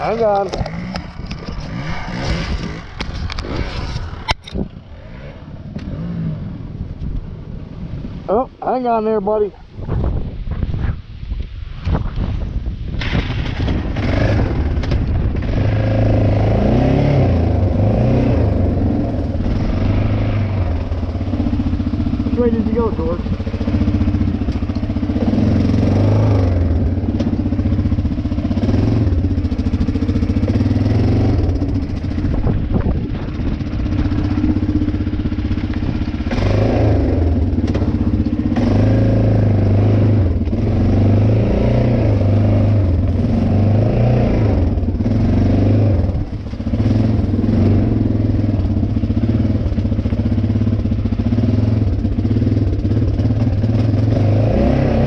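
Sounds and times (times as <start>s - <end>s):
quad bike engine running: 0.0s - 7.4s, 13.0s - 55.0s.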